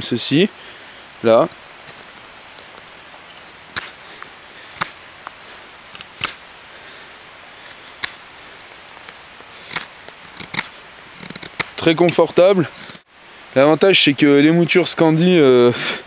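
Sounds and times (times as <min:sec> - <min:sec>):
knife slicing wood: 0:03.7 - 0:04.0, 0:04.7 - 0:05.0, 0:05.9 - 0:06.4, 0:07.6 - 0:08.2, 0:08.8 - 0:13.0.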